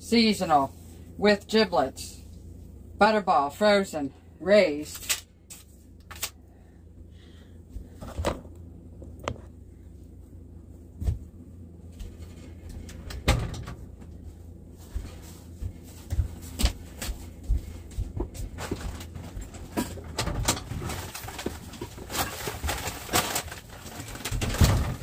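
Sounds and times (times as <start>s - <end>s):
low steady hum: 0.0s - 25.0s
groceries knocking and rustling: 15.0s - 25.0s.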